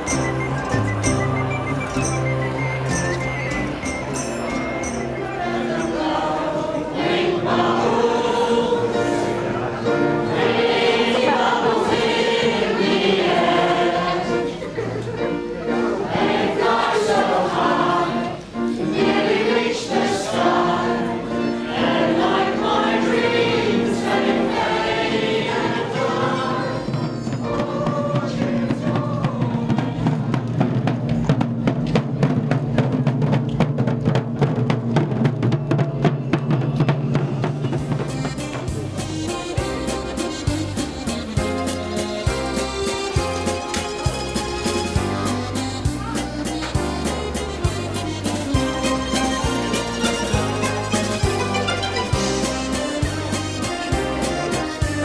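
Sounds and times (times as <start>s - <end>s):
choir singing in harmony: 0.0s - 14.8s, 15.7s - 30.5s.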